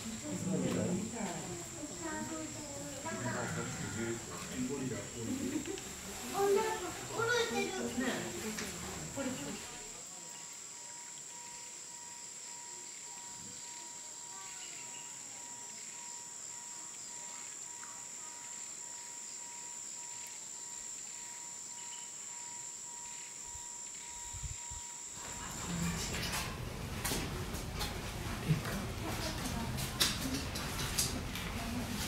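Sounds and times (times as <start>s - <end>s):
high-pitched electrical whine: 0.0s - 26.8s
background hiss: 0.0s - 28.5s
faint ticks: 10.2s - 24.6s.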